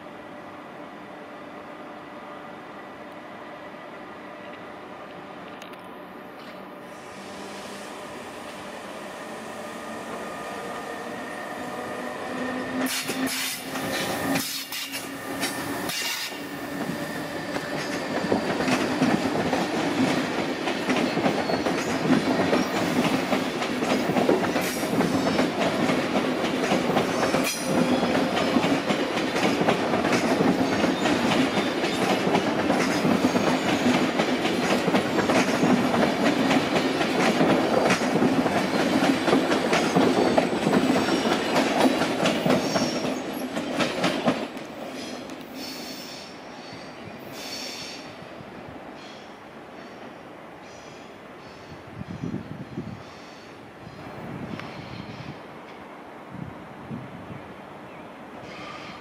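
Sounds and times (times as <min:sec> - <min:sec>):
train wheels rumbling on rails: 0:04.4 - 0:48.4
wheels clacking over rail joints: 0:12.3 - 0:45.4.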